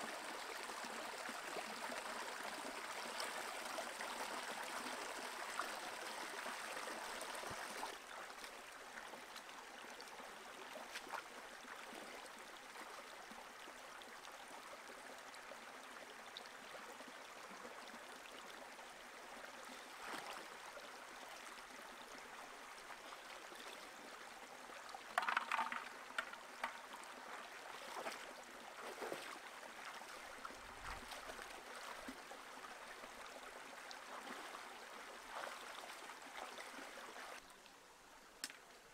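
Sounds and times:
rocky river running: 22.5s - 37.4s
splashes of wading: 25.2s - 32.2s.

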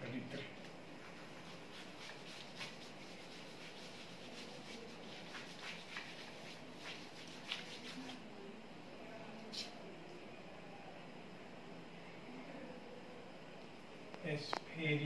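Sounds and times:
duster wiping whiteboard: 1.0s - 8.2s.

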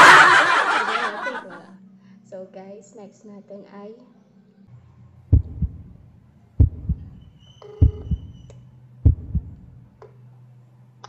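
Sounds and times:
steady low hum: 4.7s - 11.0s
heartbeat double thumps: 5.3s - 9.9s.

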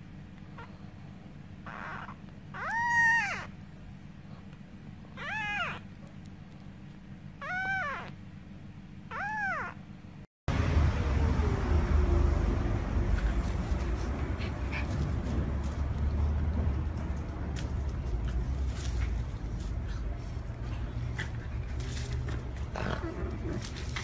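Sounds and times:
kitten mewing: 1.6s - 3.6s, 5.1s - 6.0s, 7.4s - 8.2s, 9.1s - 9.8s
steady low rumble: 9.9s - 24.0s.

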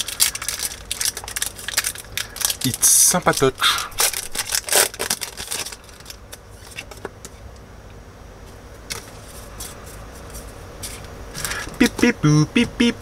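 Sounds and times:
wrapper rustling: 0.0s - 7.0s
steady low hum: 0.0s - 13.0s.

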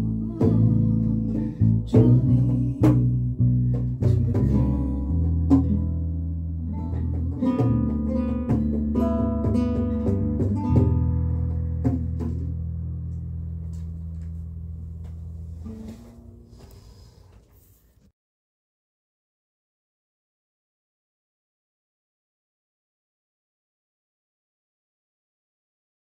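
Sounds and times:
plucked guitar notes: 0.0s - 16.6s
steady bass: 0.0s - 16.7s.

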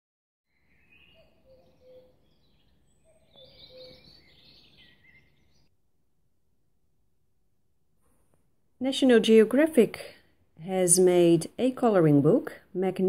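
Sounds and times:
faint bird-like chirping: 0.5s - 5.8s.

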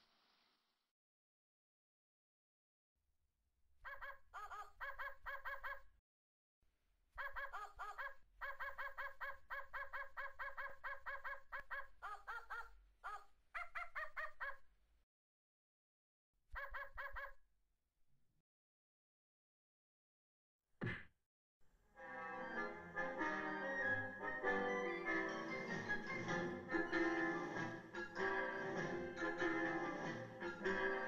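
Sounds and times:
high-pitched puppet voice babbling: 3.9s - 5.9s, 7.2s - 14.6s, 16.6s - 17.4s.

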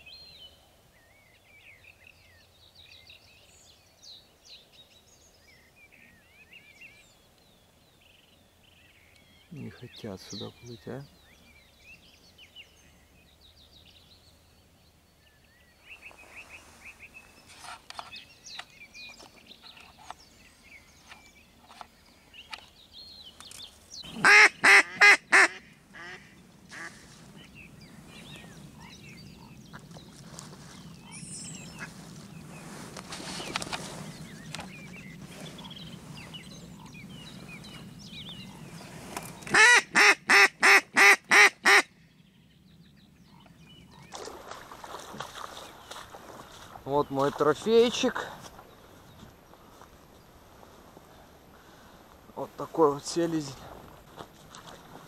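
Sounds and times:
faint small birds chirping: 0.0s - 24.8s, 25.4s - 39.6s, 41.7s - 55.0s
duck quacking loudly: 24.1s - 26.9s, 39.5s - 41.9s.

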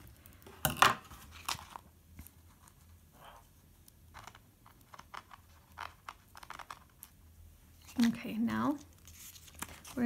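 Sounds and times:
faint rustles of cardboard: 7.7s - 10.0s.

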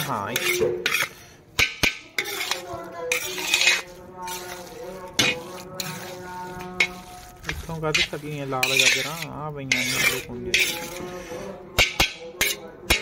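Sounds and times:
spatula scraping in wok: 0.0s - 13.0s.

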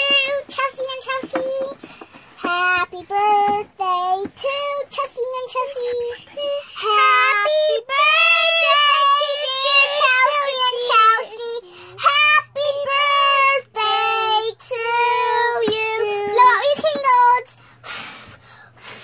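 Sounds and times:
girl singing high notes: 6.6s - 15.7s.

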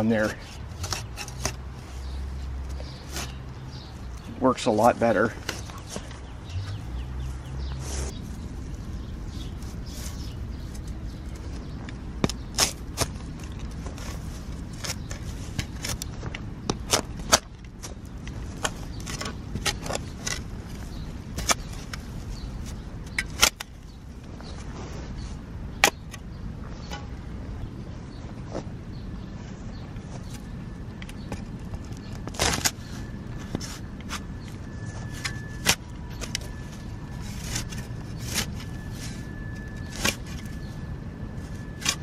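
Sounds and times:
shovel crunching into soil: 9.3s - 23.7s, 31.1s - 40.7s.

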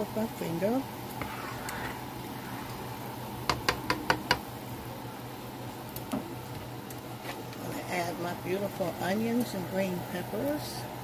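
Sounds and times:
steady low hum: 0.0s - 11.0s
spatula tapping skillet rim: 3.5s - 4.5s.

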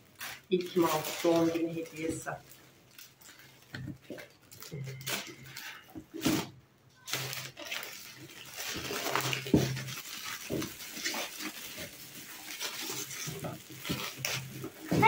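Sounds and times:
gift wrapping crinkling and tearing: 0.0s - 15.0s.

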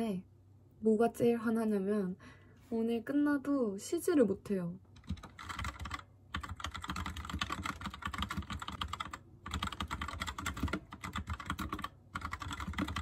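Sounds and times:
fast keyboard typing: 5.0s - 13.0s.

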